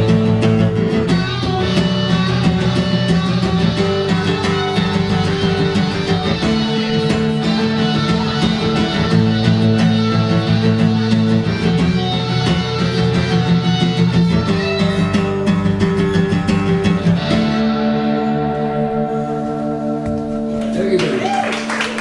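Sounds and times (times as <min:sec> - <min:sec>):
strummed acoustic guitar: 0:00.0 - 0:21.2.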